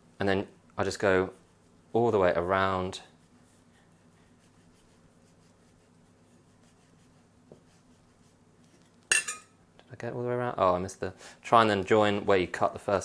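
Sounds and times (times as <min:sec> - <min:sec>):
faint low hum: 0:00.0 - 0:13.0
knife scratching avocado seed: 0:02.9 - 0:09.0.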